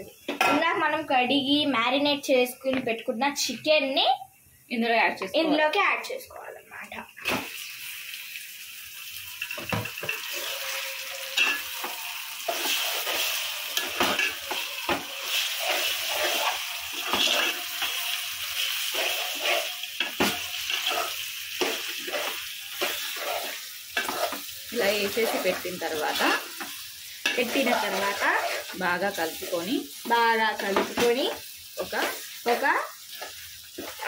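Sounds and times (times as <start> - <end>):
chicken sizzling in hot oil: 7.1 - 34.0
metal spatula scraping pot: 10.0 - 31.1, 31.8 - 34.0.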